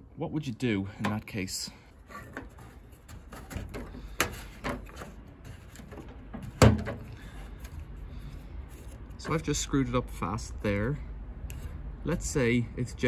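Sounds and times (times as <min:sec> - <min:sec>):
plastic clicks and scrapes: 0:02.1 - 0:07.9.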